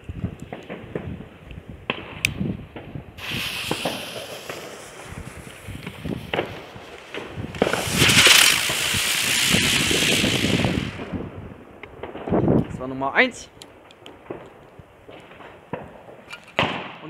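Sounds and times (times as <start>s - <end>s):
spinning firework hissing whirr: 3.2s - 11.3s
firework crackling burst: 3.2s - 12.2s.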